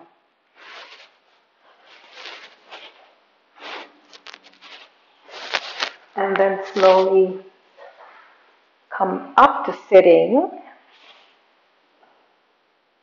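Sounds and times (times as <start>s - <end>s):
clothing and blanket rustling on mat: 0.6s - 7.2s, 10.9s - 11.4s.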